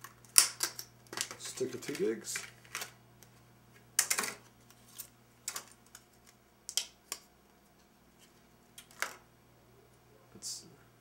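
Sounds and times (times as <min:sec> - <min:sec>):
plastic packaging clicks and crackles: 0:00.0 - 0:03.3, 0:04.0 - 0:07.3.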